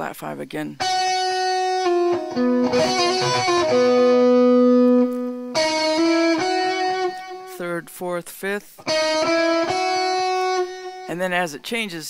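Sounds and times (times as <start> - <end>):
electric guitar blues phrase: 0.8 - 7.8, 8.8 - 11.5.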